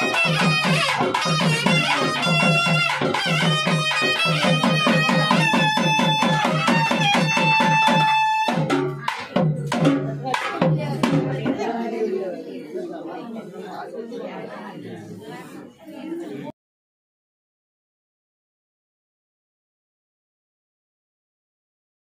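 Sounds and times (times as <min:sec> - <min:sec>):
fast drum beat: 0:00.0 - 0:11.6.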